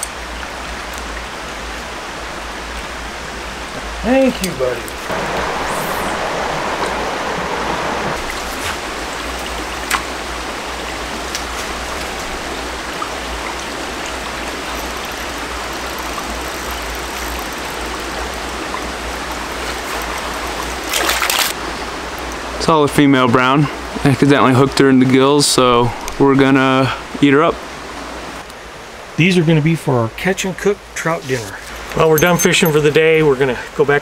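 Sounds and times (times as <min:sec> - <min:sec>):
creek water flowing: 0:00.0 - 0:34.0.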